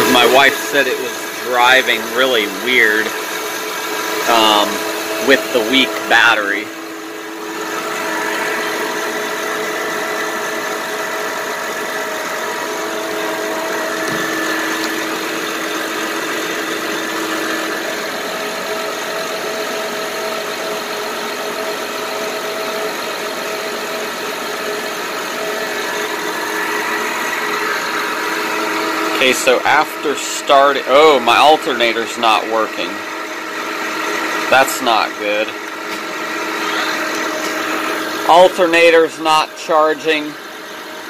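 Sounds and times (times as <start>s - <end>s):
multi-tone whine: 0.0s - 18.1s.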